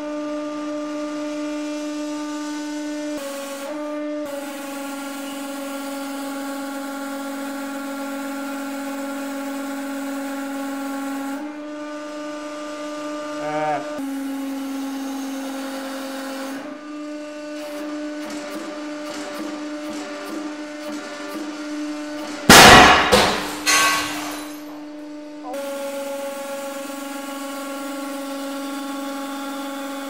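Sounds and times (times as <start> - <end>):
hydraulic press humming: 17.6 - 30.0.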